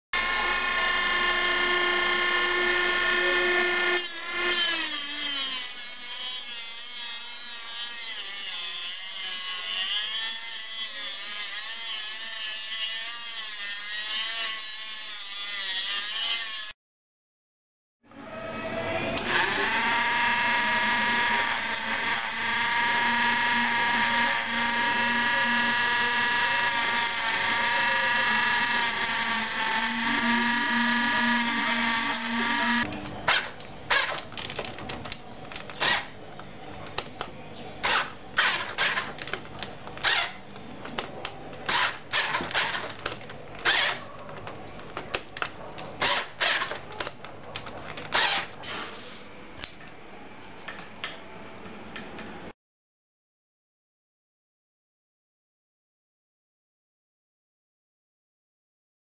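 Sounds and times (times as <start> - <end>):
rotary tool grinding whine: 0.2 - 12.0, 18.1 - 34.3, 35.6 - 36.2, 37.8 - 45.2, 46.0 - 47.0, 47.9 - 48.7.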